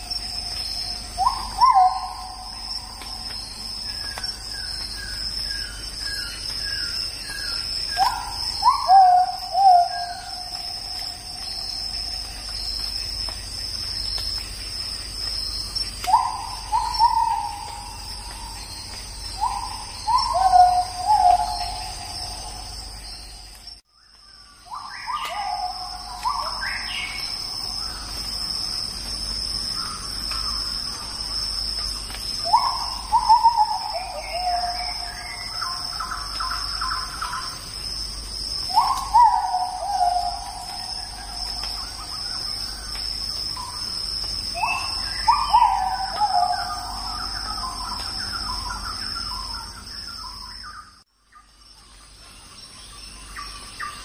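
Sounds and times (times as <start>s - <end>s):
bird calls: 0.0s - 14.4s, 15.2s - 23.5s, 24.5s - 28.3s, 29.7s - 37.6s, 38.6s - 43.8s, 44.5s - 54.0s
high insect trilling: 0.0s - 23.7s.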